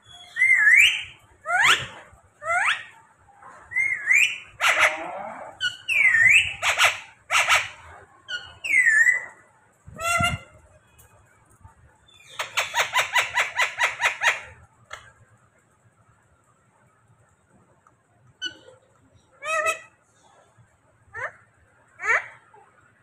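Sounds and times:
parakeet calling: 12.2s - 14.6s.

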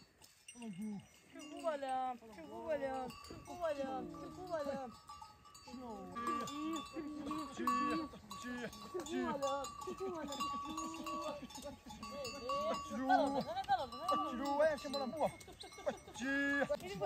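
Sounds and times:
animal bells clinking: 0.0s - 17.0s
livestock calling: 5.7s - 16.4s.

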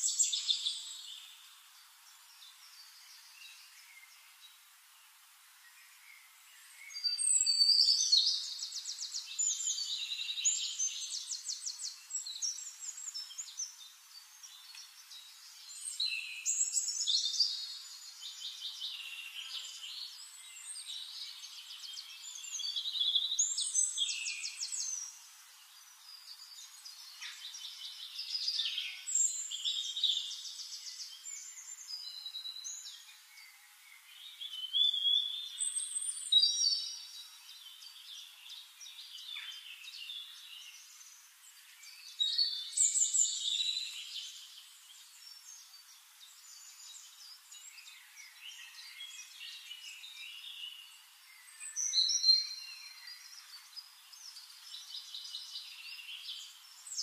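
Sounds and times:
bird trills and chirps: 6.9s - 25.2s.

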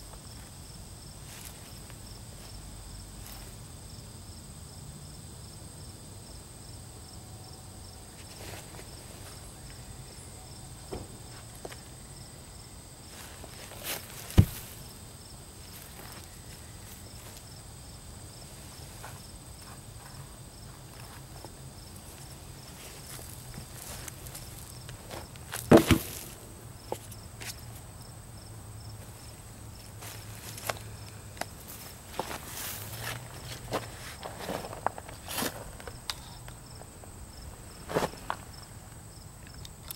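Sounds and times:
insects chirping: 0.0s - 39.9s
coveralls rustling: 13.2s - 14.9s, 18.7s - 26.4s
footsteps on sawdust: 13.2s - 14.9s, 18.7s - 27.6s, 31.5s - 35.9s
loud thump: 14.3s - 14.8s, 25.7s - 26.4s
heavy thud of wood dropped: 14.3s - 14.9s, 25.5s - 26.4s
wood knocking: 14.4s - 14.8s, 25.7s - 26.4s.

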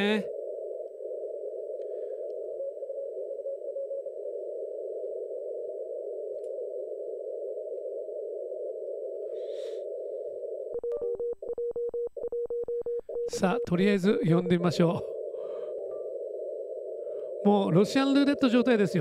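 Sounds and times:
faint morse code tones: 10.7s - 19.0s
radio hiss: 13.1s - 19.0s.

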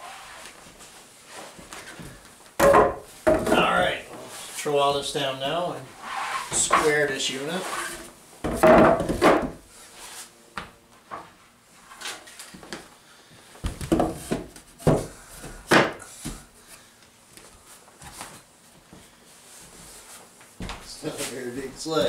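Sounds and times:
wooden planks knocking: 2.6s - 3.7s.

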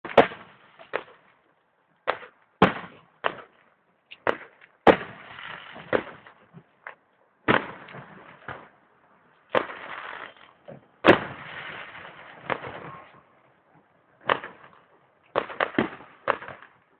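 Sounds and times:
fireworks bangs: 4.2s - 6.6s, 7.5s - 8.7s, 9.5s - 10.4s, 11.0s - 13.3s
fireworks crackling: 4.3s - 6.4s, 9.5s - 13.1s.

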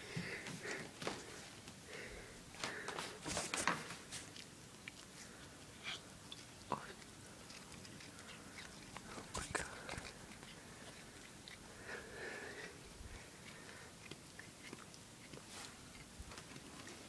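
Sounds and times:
cat chewing on string: 3.4s - 17.0s.

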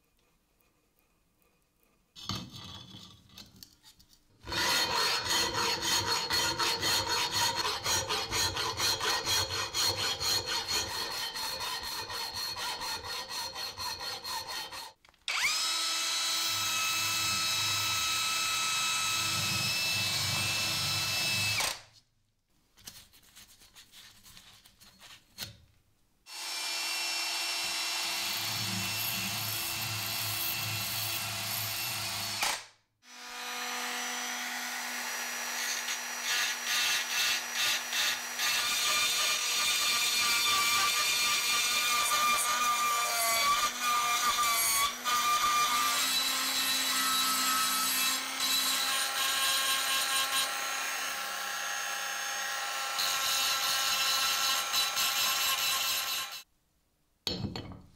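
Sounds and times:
power tool grinding metal: 4.5s - 21.7s, 33.1s - 56.4s.

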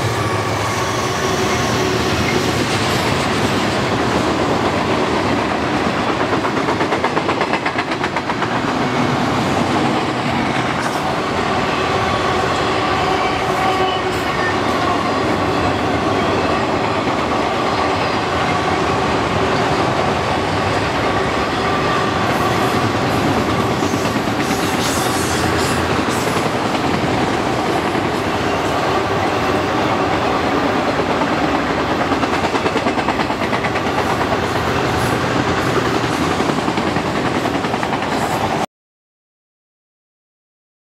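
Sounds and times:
freight train cars rolling past: 0.0s - 38.6s
steel wheels on rails: 0.0s - 38.6s.

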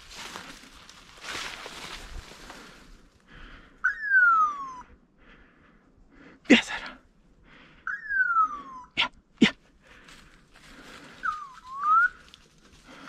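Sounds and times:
faint rustling of brush: 0.0s - 3.0s
falling whistles: 3.8s - 4.8s, 7.9s - 9.0s, 11.2s - 12.3s.

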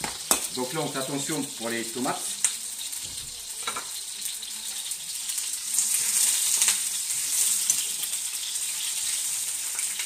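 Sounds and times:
tomatoes sizzling in a pan: 0.0s - 10.0s.

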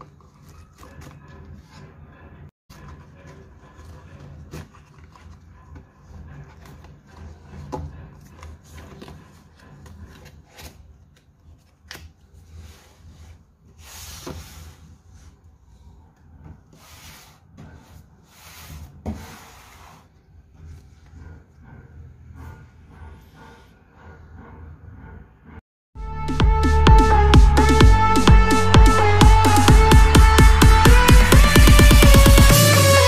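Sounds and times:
boxes scraping on tabletop: 12.5s - 15.2s, 16.7s - 20.2s.

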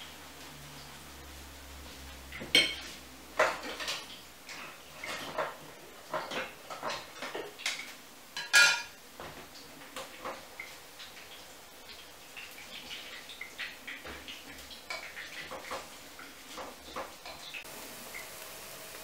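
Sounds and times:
utensils clinking against glass bowl: 8.4s - 9.0s.

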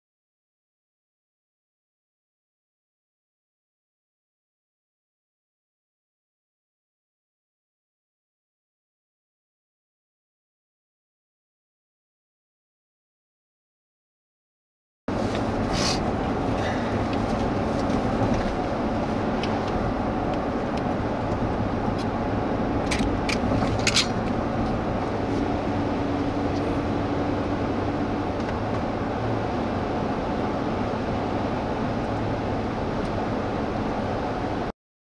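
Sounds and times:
car road and engine noise: 15.1s - 34.8s.

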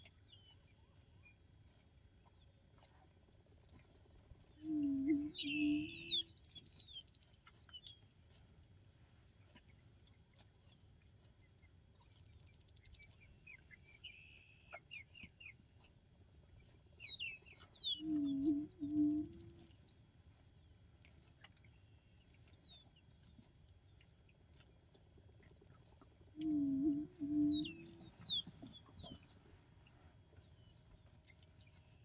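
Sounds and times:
songbirds singing trills: 0.0s - 1.4s, 4.6s - 8.1s, 11.4s - 15.6s, 16.5s - 20.0s, 26.3s - 29.4s
prairie-chicken booming hoot: 26.4s - 28.0s.

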